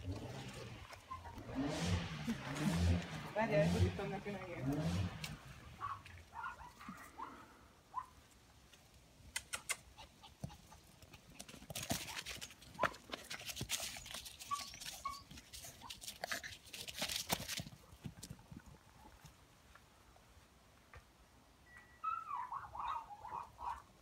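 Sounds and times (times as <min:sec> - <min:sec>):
rustling and crackling dry leaves: 0:00.0 - 0:07.6, 0:10.4 - 0:20.5.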